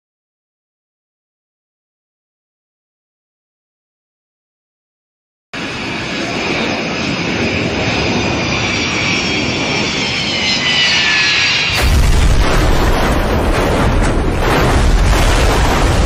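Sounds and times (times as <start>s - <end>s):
jet engines whining: 5.6s - 16.0s
heavy crash rumble: 11.7s - 16.0s.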